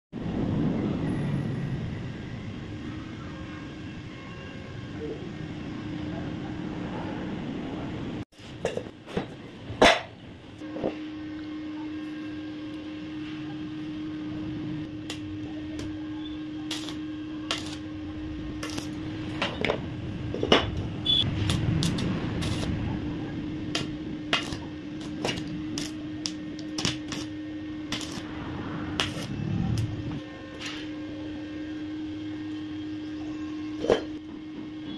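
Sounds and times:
electrical hum: 0.2s - 34.9s
arc welder crackling: 12.1s - 34.9s.

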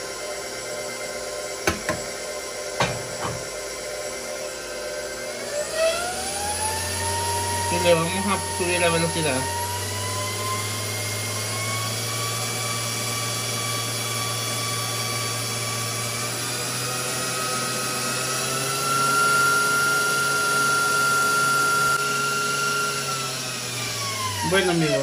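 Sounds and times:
stand mixer motor whining: 0.0s - 25.0s
whisk beating batter in steel bowl: 5.0s - 25.0s.

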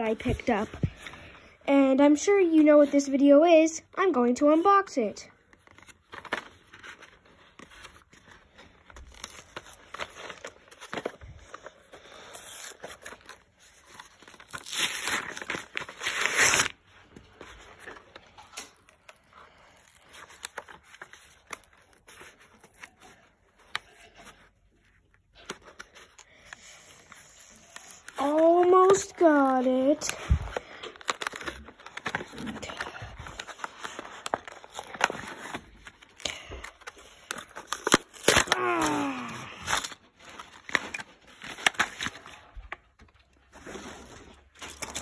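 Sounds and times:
plastic packaging being torn open: 8.8s - 16.8s, 17.7s - 24.4s, 25.4s - 45.0s.

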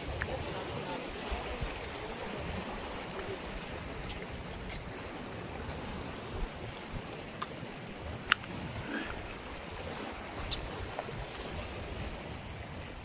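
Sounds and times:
waves washing over rocks: 0.0s - 13.0s
wind on microphone: 0.0s - 13.0s
faint ticks: 7.4s - 7.6s.

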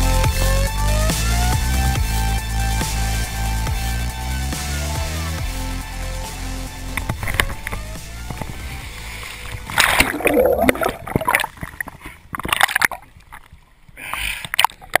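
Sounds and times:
water splashing and sloshing: 6.9s - 15.0s.

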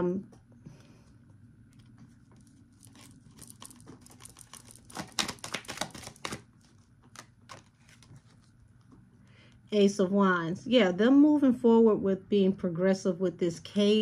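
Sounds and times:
cards clicking and flicking: 2.9s - 8.2s.

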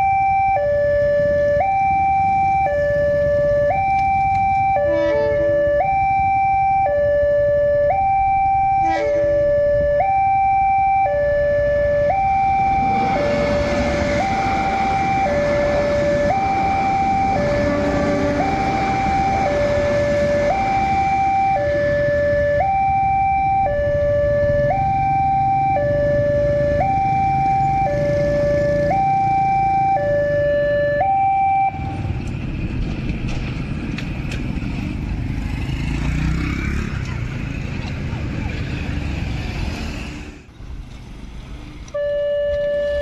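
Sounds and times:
level crossing two-tone alarm: 0.0s - 32.0s, 42.0s - 43.0s
train rushing over rails: 12.6s - 21.1s.

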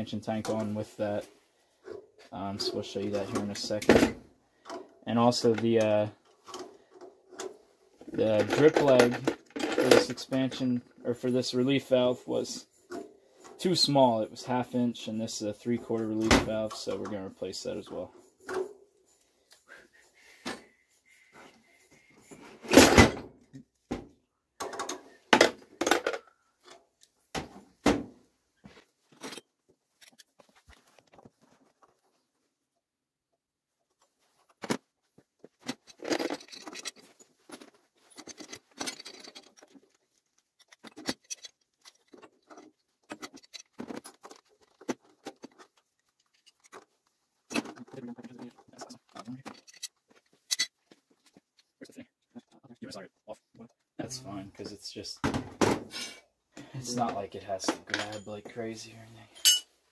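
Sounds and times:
metal tools clanking: 7.4s - 10.8s, 35.6s - 46.9s, 47.5s - 50.8s, 56.9s - 59.8s.

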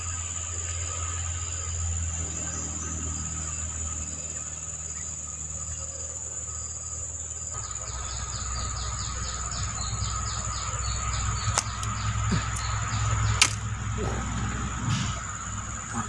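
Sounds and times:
high-pitched insect drone: 0.0s - 16.0s
pulsing insect call: 0.0s - 16.0s
sharp clicks: 11.4s - 13.7s.

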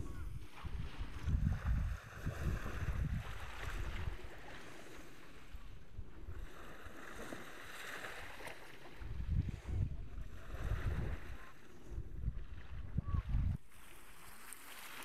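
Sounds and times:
wind buffeting microphone: 0.0s - 4.6s, 8.2s - 13.7s
small waves on shore: 0.0s - 15.0s.

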